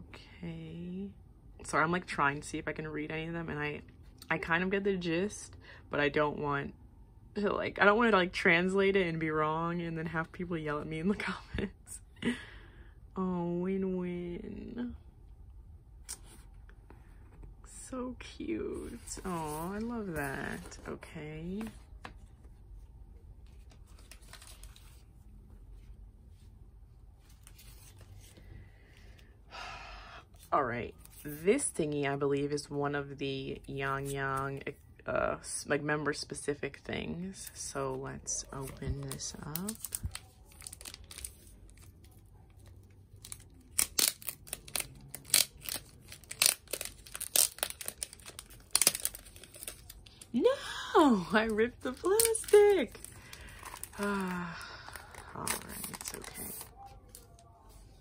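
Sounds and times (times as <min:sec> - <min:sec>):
low steady room hum: 0:00.0 - 0:58.0
plastic sleeve rustling: 0:23.4 - 0:25.3, 0:38.6 - 0:57.8
plastic wrapping crinkling and tearing: 0:23.5 - 0:25.1, 0:38.6 - 0:50.6, 0:51.3 - 0:57.6.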